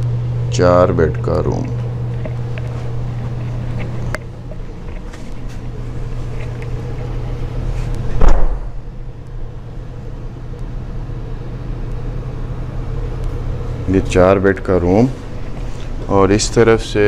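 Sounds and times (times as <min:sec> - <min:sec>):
low mechanical hum: 0:00.0 - 0:17.0
loud thump: 0:08.2 - 0:08.8.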